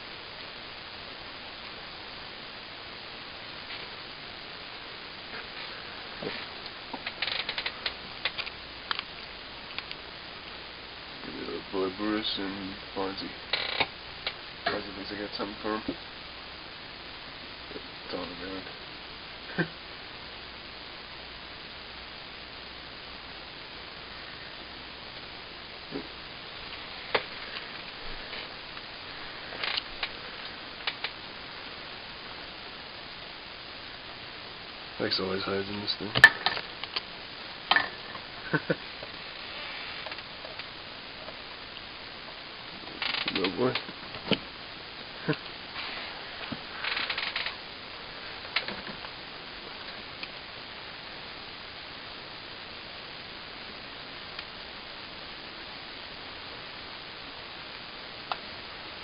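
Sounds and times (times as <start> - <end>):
steady background hiss: 0.0 - 59.0.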